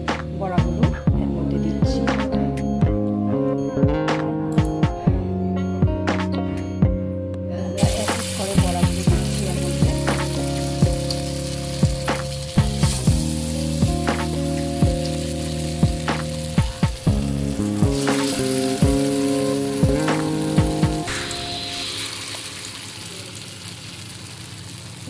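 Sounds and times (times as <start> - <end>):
background music with beat: 0.0 - 23.2
batter sizzling in hot oil: 7.8 - 25.0.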